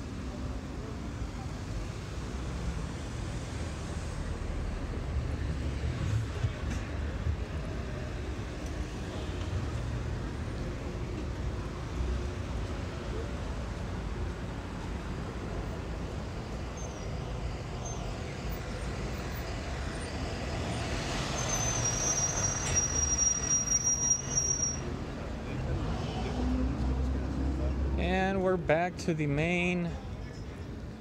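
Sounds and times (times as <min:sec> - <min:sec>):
cars and truck passing: 0:00.0 - 0:31.0
high steady squeal: 0:19.9 - 0:24.9.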